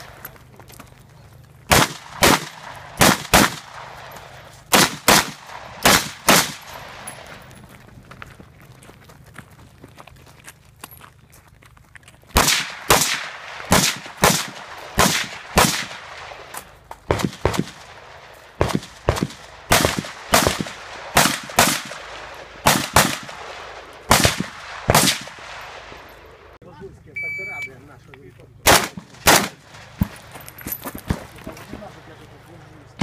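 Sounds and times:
rifle shots with echo: 1.7 - 7.4, 12.4 - 26.4, 28.6 - 30.3.

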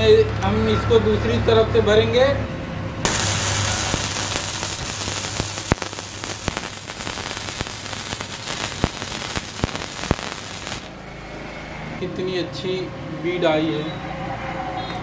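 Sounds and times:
sharp pops of spatter: 3.1 - 10.9
welding arc crackling sizzle: 3.1 - 11.0.

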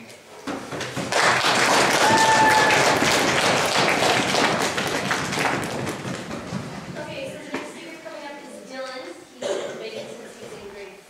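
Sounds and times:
small audience applauding: 0.7 - 7.4.

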